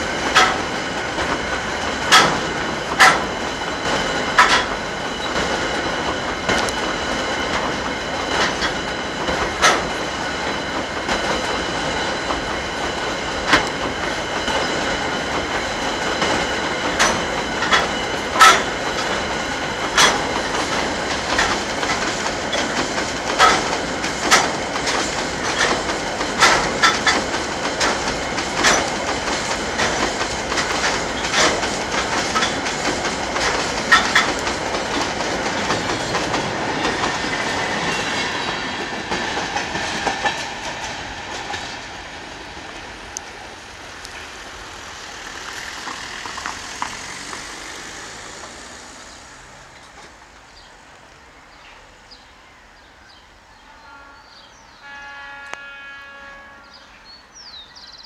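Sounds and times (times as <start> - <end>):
train wheels clacking over rail joints: 0.0 - 50.7.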